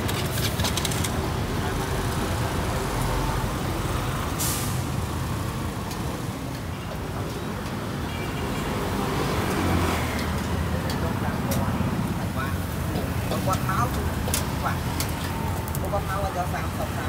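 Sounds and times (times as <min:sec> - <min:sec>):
vehicle engines passing: 0:00.0 - 0:17.0
short sharp hiss: 0:04.4 - 0:04.8.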